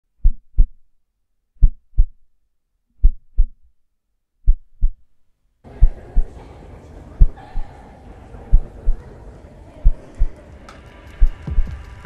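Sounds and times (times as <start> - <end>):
heartbeat double thumps: 1.6 - 2.2, 3.0 - 3.7, 4.4 - 5.0, 5.8 - 6.3, 11.2 - 11.8.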